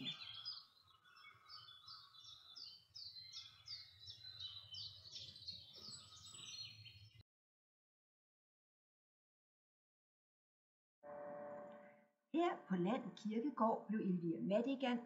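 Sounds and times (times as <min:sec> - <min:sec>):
songbird singing: 0:00.0 - 0:07.2.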